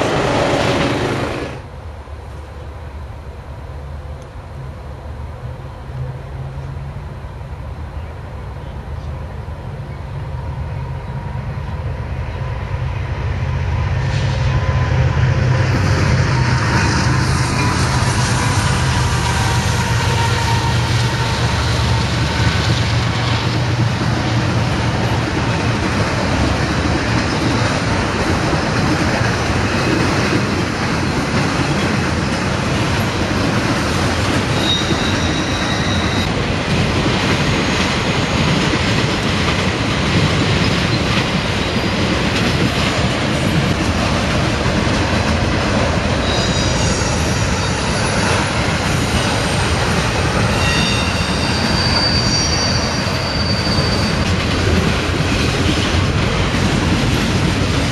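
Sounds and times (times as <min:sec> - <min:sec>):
diesel locomotive engines: 0:00.0 - 0:57.9
train wheel and rail noise: 0:00.0 - 0:57.9
high wheel squeals: 0:34.5 - 0:36.3, 0:46.2 - 0:54.4.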